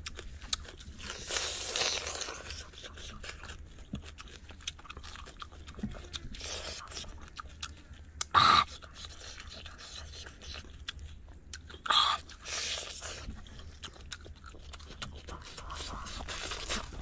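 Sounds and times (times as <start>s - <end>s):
person chewing meat: 0.0s - 17.0s.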